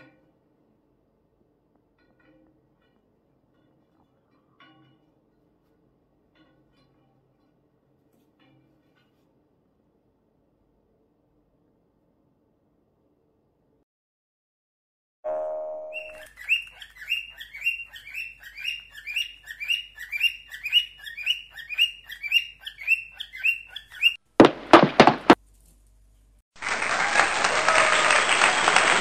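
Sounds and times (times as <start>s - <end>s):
cockatiel chirping: 15.9s - 24.2s
sharp cracks: 24.4s - 25.4s
applause: 26.6s - 29.0s.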